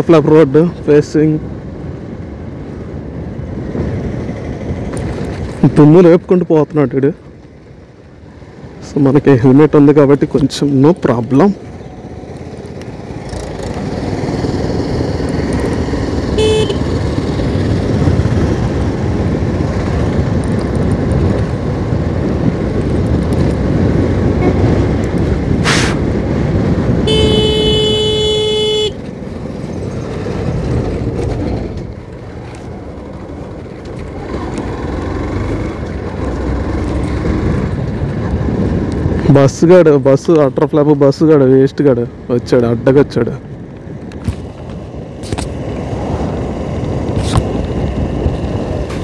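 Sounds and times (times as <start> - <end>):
motorcycle riding wind and engine: 0.0 - 49.0
vehicle horn toots: 16.4 - 16.9, 27.0 - 29.0.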